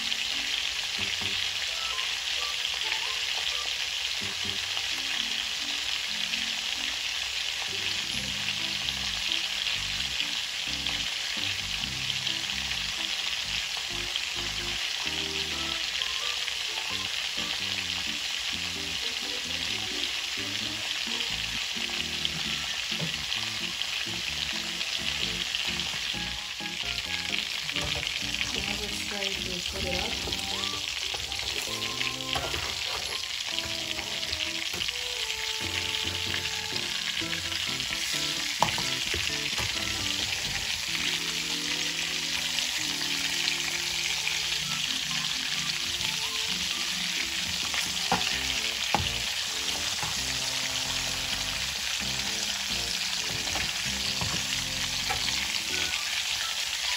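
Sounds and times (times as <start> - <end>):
chicken sizzling in frying pan: 0.0 - 56.9.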